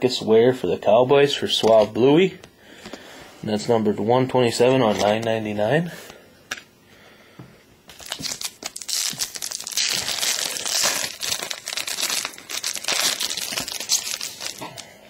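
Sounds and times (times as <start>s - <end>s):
foil wrapper crinkling: 7.9s - 14.9s.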